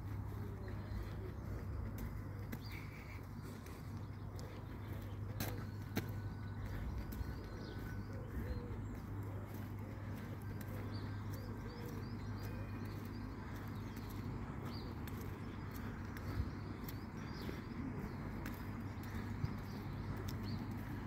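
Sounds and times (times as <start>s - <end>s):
low background rumble: 0.0s - 21.0s
small birds chirping: 0.0s - 21.0s.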